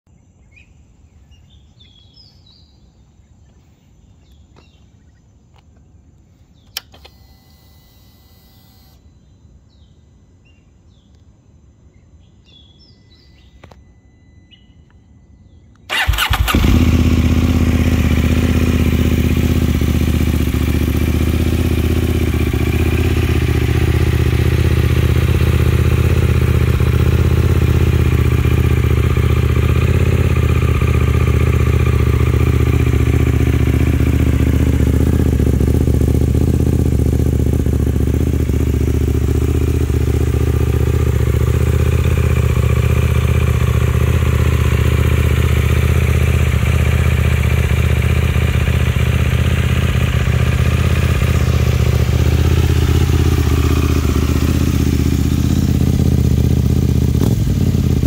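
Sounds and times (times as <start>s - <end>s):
faint birdsong: 0.1s - 57.2s
click: 6.6s - 7.2s, 11.1s - 11.3s, 13.6s - 13.8s, 15.7s - 15.9s
motorcycle engine starting and idling: 6.6s - 9.1s, 15.6s - 58.0s.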